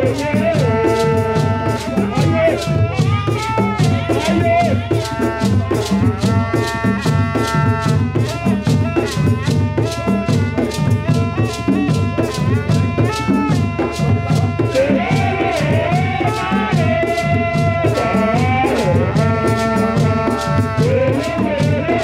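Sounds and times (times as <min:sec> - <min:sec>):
drums and rattles beating: 0:00.0 - 0:22.0.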